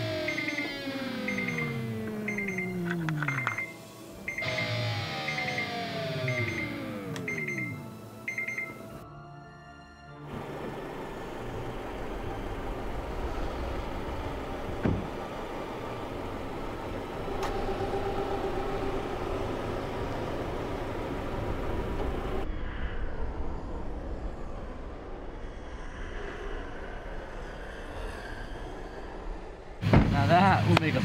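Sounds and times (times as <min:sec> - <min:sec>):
car engine idling: 0:10.3 - 0:22.4.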